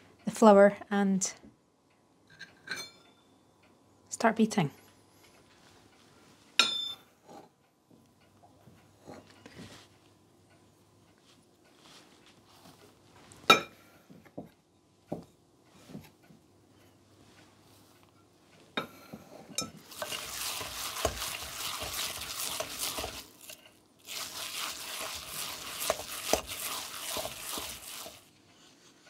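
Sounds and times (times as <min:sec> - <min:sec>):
dough slapping by hand: 0:19.9 - 0:28.3.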